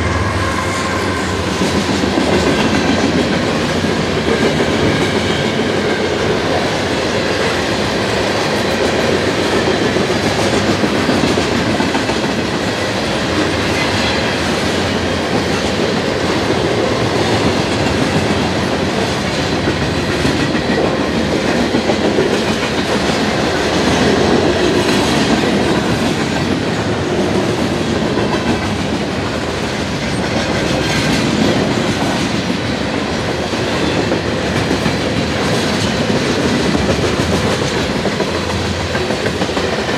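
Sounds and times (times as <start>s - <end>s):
freight train rumbling past: 0.0s - 39.9s.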